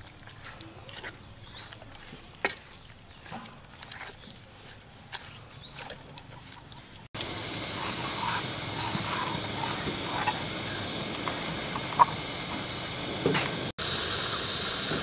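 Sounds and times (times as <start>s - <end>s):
wet squelches: 0.0s - 12.3s
steady hiss: 7.2s - 15.0s.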